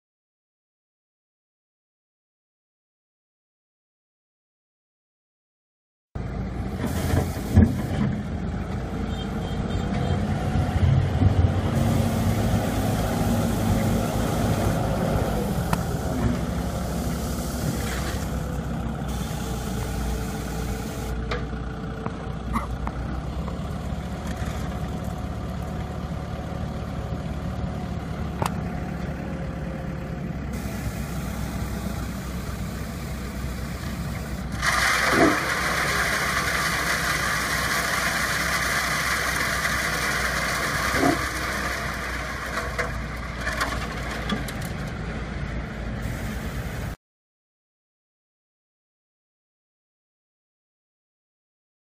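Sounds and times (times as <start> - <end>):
truck engine running: 6.2 - 47.0
loud steady hiss: 11.8 - 18.4, 30.6 - 38.3, 46.0 - 47.0.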